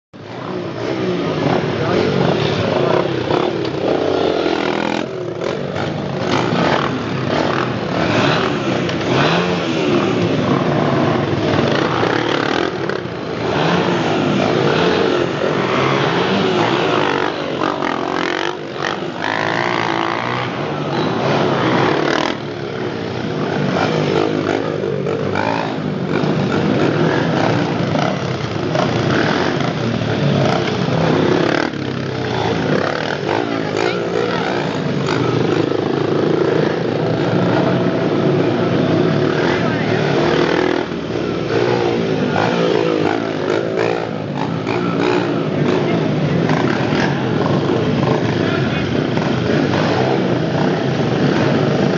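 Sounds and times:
dirt bike engines revving: 0.2s - 51.9s.

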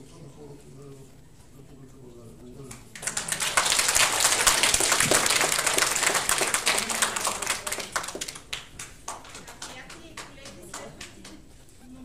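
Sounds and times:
audience applauding: 2.9s - 11.5s.

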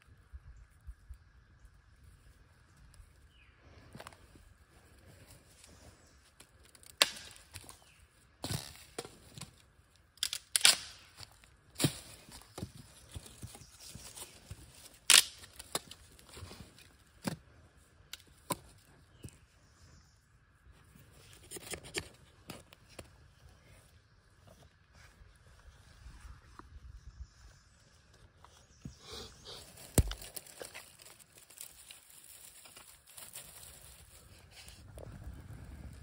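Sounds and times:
dry sticks cracking: 5.7s - 17.4s, 18.0s - 18.9s, 29.7s - 34.6s.

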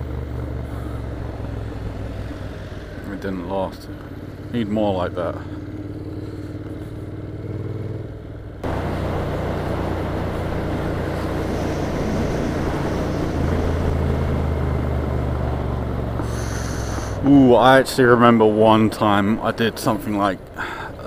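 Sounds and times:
motorcycle engine running: 0.0s - 21.0s
wind noise: 9.4s - 15.4s.

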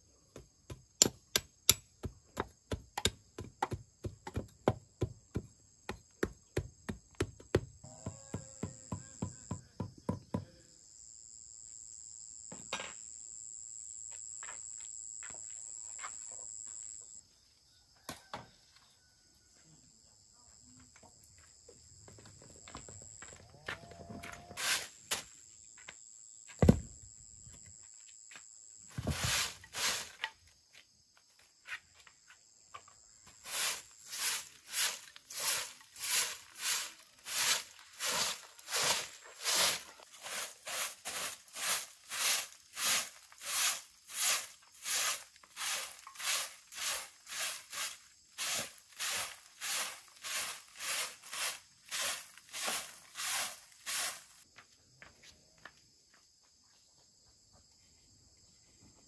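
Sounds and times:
broom sweeping concrete floor: 24.4s - 25.5s, 27.9s - 30.4s, 33.2s - 54.5s.

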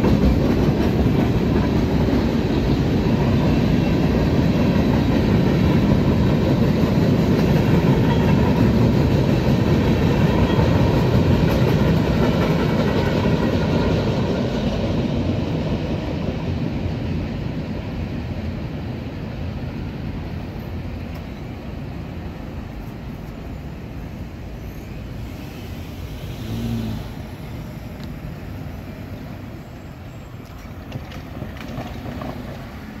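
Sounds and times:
freight train rumble: 0.0s - 33.0s
road traffic passing: 20.2s - 33.0s
engine-like hum: 24.5s - 32.7s.

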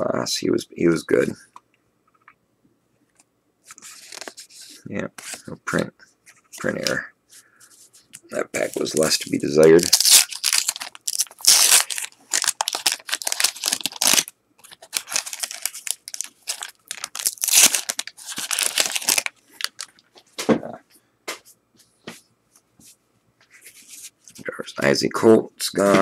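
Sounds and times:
wrapper being torn and crinkled: 8.6s - 19.9s.

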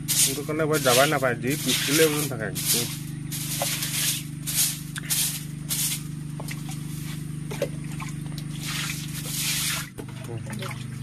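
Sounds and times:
broom scrubbing wet floor: 0.0s - 11.0s
steady low hum: 0.0s - 11.0s
water splashing: 7.5s - 11.0s.

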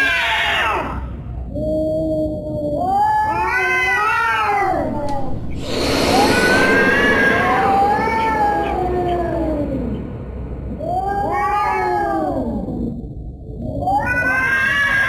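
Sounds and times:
harsh noisy burst: 4.6s - 12.3s.

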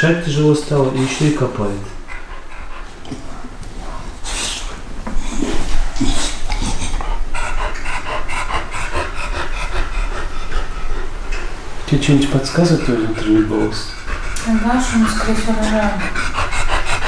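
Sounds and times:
dog panting hard: 0.5s - 17.0s
scratching and rustling of bedding: 0.9s - 7.2s.

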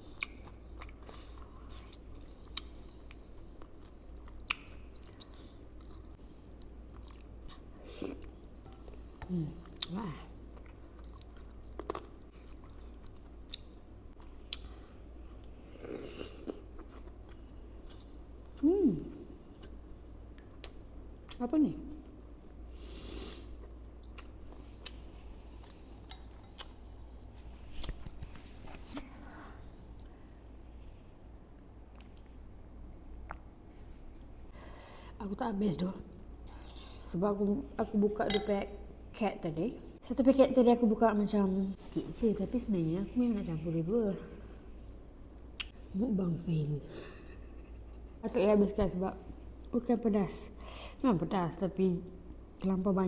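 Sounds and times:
close chewing with mouth sounds: 0.0s - 21.4s, 23.4s - 30.2s
mouth clicks and smacks: 45.5s - 45.8s.

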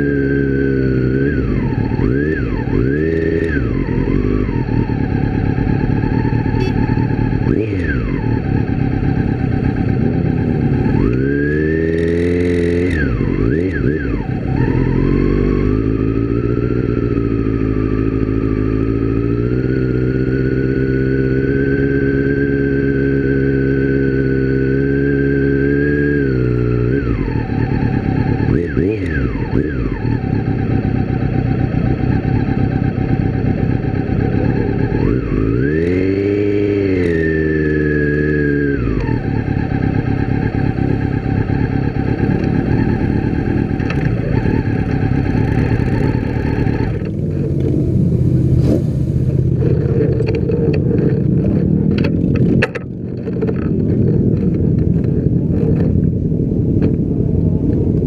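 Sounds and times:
motorcycle engine revving: 0.0s - 58.0s
motorcycle engines idling: 0.9s - 19.5s, 26.5s - 37.1s, 37.7s - 58.0s.

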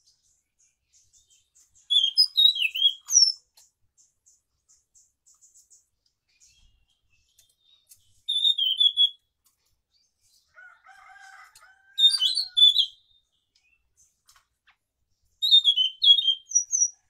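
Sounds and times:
rooster crowing faintly: 10.5s - 12.7s.

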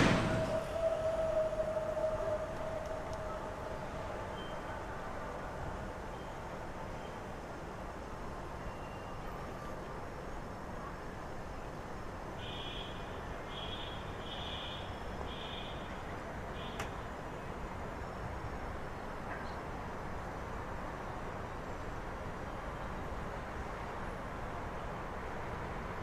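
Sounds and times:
distant traffic: 0.0s - 7.0s.

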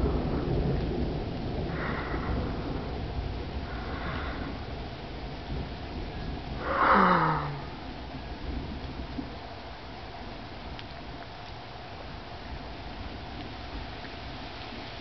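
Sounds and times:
thunder rumbling: 0.0s - 15.0s
person breathing close: 1.7s - 3.0s, 3.6s - 4.7s, 6.6s - 7.8s
person sighing: 6.6s - 7.8s.

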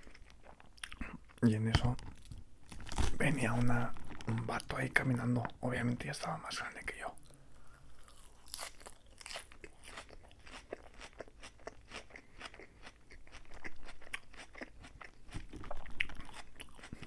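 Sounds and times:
chewing crisp lettuce: 0.0s - 1.4s, 8.0s - 17.0s.

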